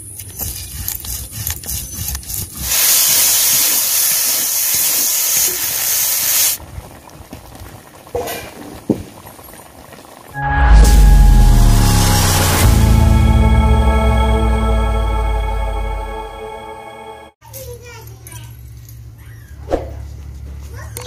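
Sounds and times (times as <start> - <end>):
slices sizzling in oil: 2.5 - 6.6.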